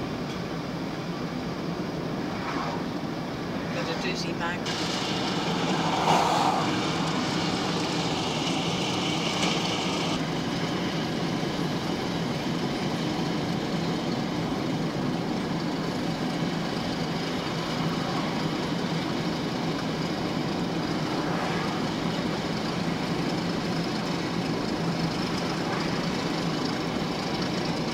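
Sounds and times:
car road and engine noise: 0:00.0 - 0:27.9
hiss: 0:04.6 - 0:10.2.

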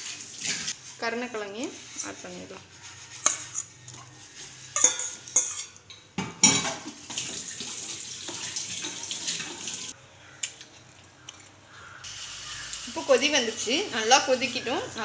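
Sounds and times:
metal ladle clinking on pot: 0:04.8 - 0:06.8.

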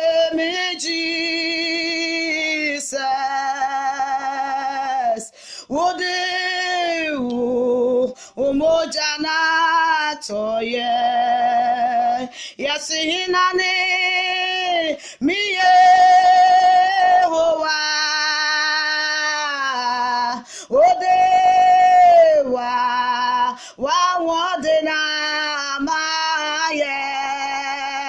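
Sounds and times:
woman singing unaccompanied: 0:00.0 - 0:28.0
breaths: 0:05.2 - 0:05.7, 0:08.1 - 0:08.4, 0:12.3 - 0:12.6, 0:14.9 - 0:15.2, 0:20.4 - 0:20.8, 0:23.5 - 0:23.8.

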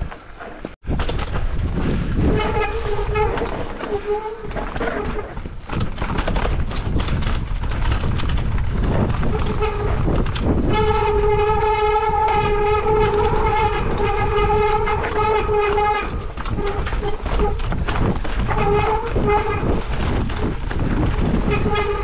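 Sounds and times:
bike tyres rattling on trail: 0:00.0 - 0:22.0
steady horn-like tone: 0:10.6 - 0:17.6.

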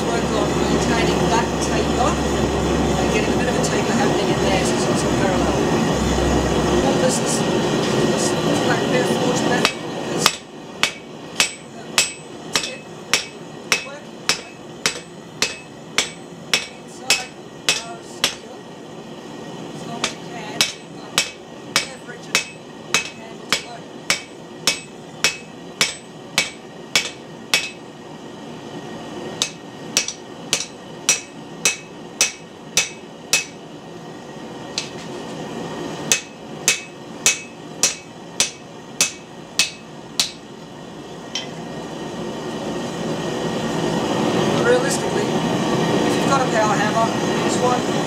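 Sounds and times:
hammer striking steel on anvil: 0:09.6 - 0:18.5, 0:20.0 - 0:27.9, 0:29.4 - 0:33.6, 0:34.8 - 0:35.1, 0:36.1 - 0:40.5.

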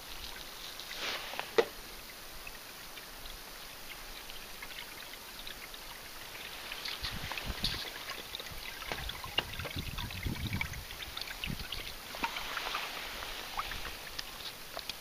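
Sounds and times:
small splashes and plinks: 0:02.4 - 0:15.0
water lapping against hull: 0:04.4 - 0:15.0.

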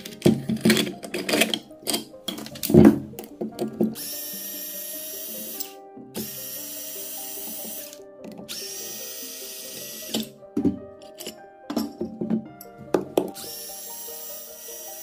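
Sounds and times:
cordless screwdriver running: 0:04.0 - 0:10.3, 0:13.4 - 0:15.0.

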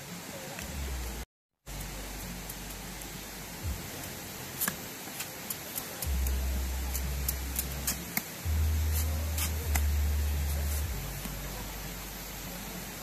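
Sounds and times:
low steady drone: 0:00.7 - 0:04.6, 0:06.0 - 0:13.0.

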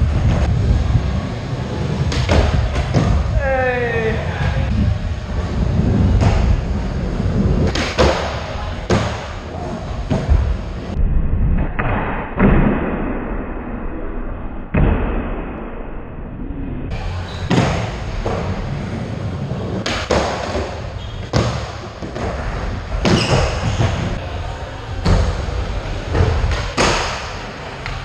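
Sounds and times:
skateboard wheels rolling: 0:00.0 - 0:11.0, 0:16.9 - 0:28.0
skateboard clacking and landing: 0:07.6 - 0:10.4, 0:19.7 - 0:24.2, 0:26.1 - 0:28.0.

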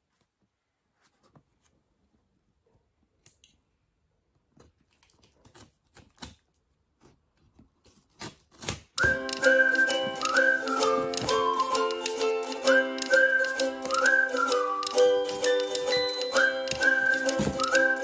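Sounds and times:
scissors cutting packing tape: 0:07.8 - 0:09.4
music: 0:09.0 - 0:18.0.

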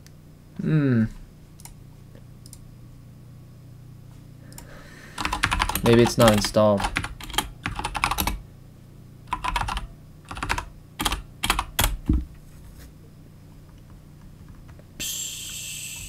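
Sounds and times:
keyboard typing: 0:05.2 - 0:08.4, 0:09.3 - 0:12.0.

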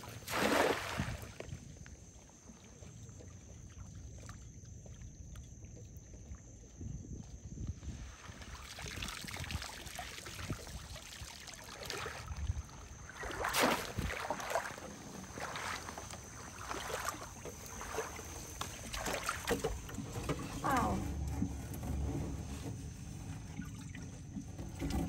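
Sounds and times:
shallow water sloshing and splashing: 0:00.0 - 0:25.0
water dripping from a net: 0:08.5 - 0:20.0.

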